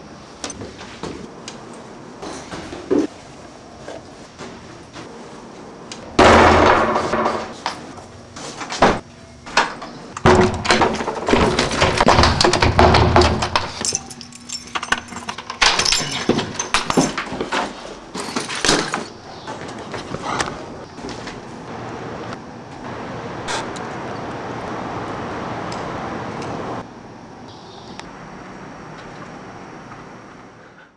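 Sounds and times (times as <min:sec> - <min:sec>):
clattering knocks and rattles: 0:09.6 - 0:19.8.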